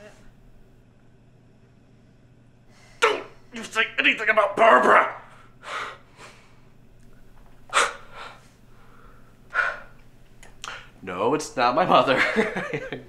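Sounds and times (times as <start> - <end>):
person breathing out in huffs: 5.3 - 6.8, 7.7 - 10.0.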